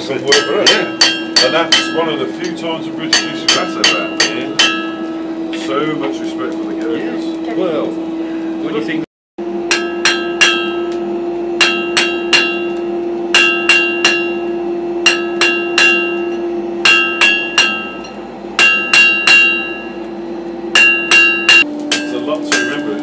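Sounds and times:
steady hum: 0.0 - 23.0
hammer ringing on anvil: 0.2 - 5.2, 9.6 - 11.0, 11.6 - 20.1, 20.7 - 23.0.

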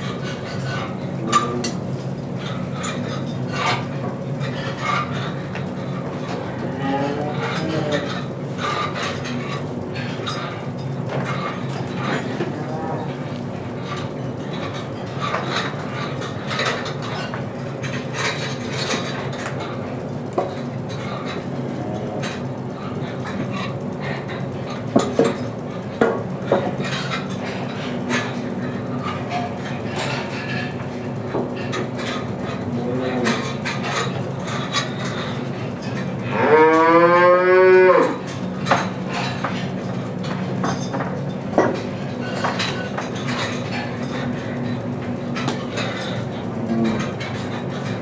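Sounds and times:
scraping and clattering of hand work: 0.0 - 48.0
cow mooing: 6.6 - 8.1, 32.7 - 33.4, 36.3 - 38.2, 46.6 - 47.1.

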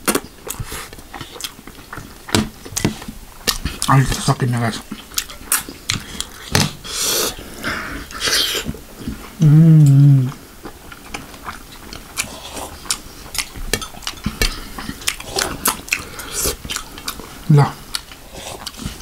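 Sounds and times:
man humming mmm: 9.4 - 10.4
lip smacks and chewing clicks: 10.6 - 17.2.

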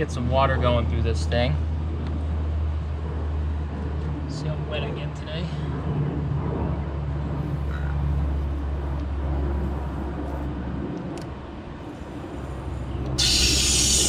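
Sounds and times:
low mechanical hum: 0.0 - 14.0
water rushing from garden hose: 13.2 - 14.0.

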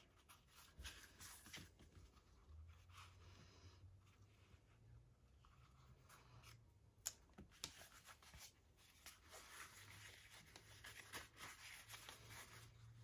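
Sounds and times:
cloth wallet rustling: 7.6 - 13.0.

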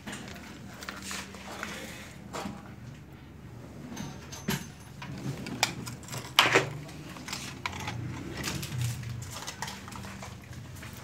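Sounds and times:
plastic wrap rustling: 0.0 - 2.2, 5.5 - 11.0.

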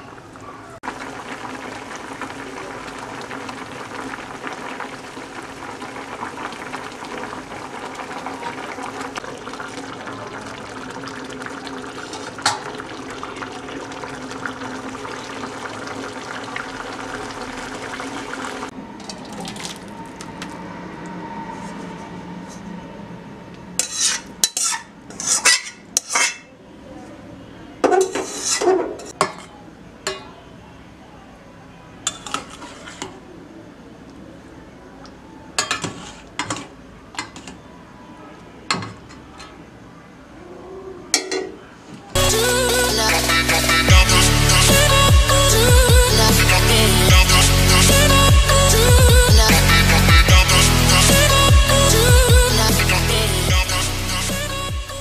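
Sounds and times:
curry bubbling in a pan: 0.8 - 19.9
spatula scraping metal pot: 23.8 - 26.5, 28.0 - 29.0.

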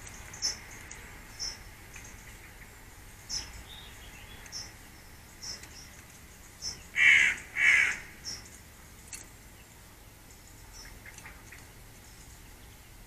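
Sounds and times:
magpie harsh calls: 6.9 - 8.4.

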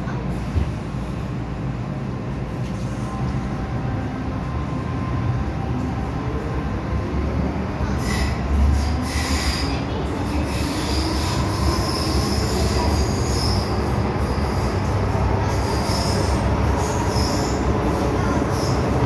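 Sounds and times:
train rumbling in tunnel: 0.0 - 19.0
wheel squeal on rails: 8.0 - 9.8, 10.5 - 13.9.

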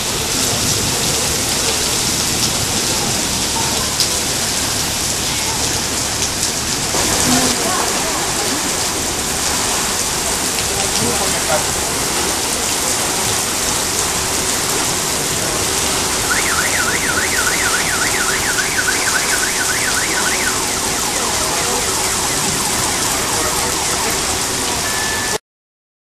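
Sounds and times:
water gushing through drain grate: 0.0 - 25.0
heavy rain downpour: 0.0 - 25.4
car alarm warbling: 16.2 - 25.4.

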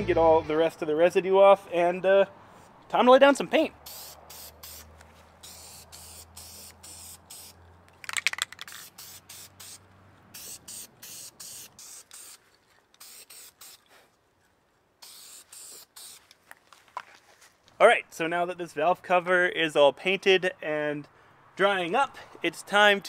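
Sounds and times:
aerosol can spraying: 3.8 - 7.6, 8.3 - 9.8, 10.4 - 12.4, 13.0 - 13.9, 15.0 - 16.3.

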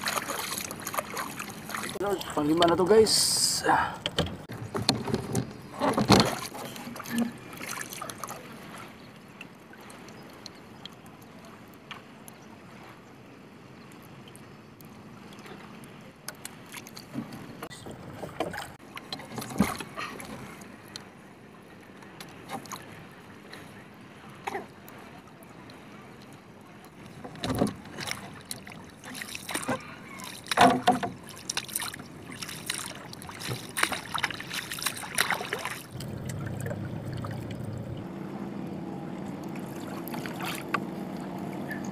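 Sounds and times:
water lapping against canoe: 0.0 - 41.9
knocks and thumps in hull: 4.0 - 7.8, 17.1 - 20.5, 27.2 - 31.8, 32.4 - 37.8.

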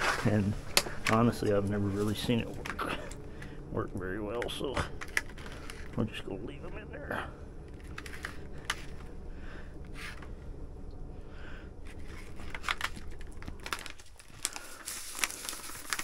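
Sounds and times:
low hum: 0.0 - 16.0
plastic bag crinkling: 11.9 - 16.0.

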